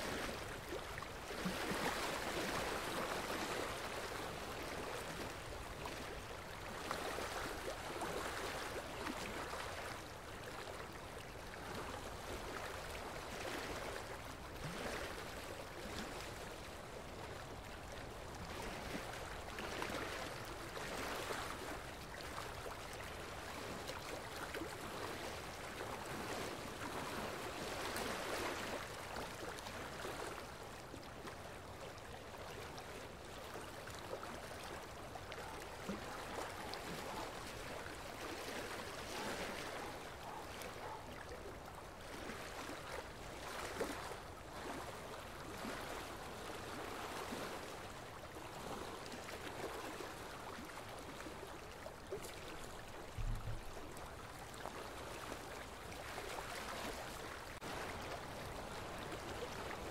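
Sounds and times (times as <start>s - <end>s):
water rushing: 35.4s - 41.2s
low thump: 53.2s - 53.7s.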